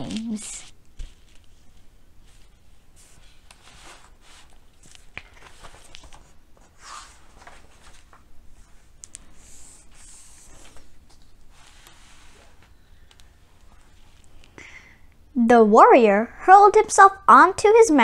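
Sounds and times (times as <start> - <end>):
paper page rustling: 0.1 - 14.4.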